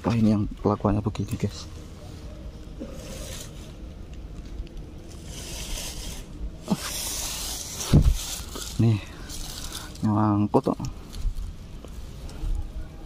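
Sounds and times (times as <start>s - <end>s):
scratchy rustling and scraping: 2.1s - 10.1s.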